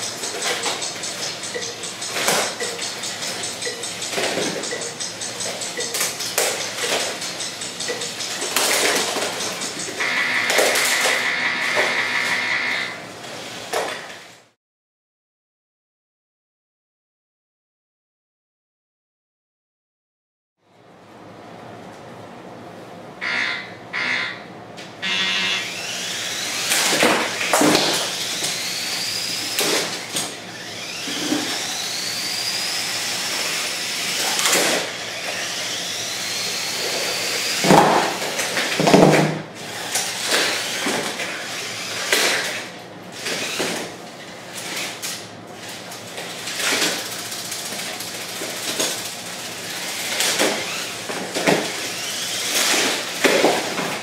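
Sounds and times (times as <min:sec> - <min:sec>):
electric motors whirring: 0:00.0 - 0:14.1, 0:25.0 - 0:54.0.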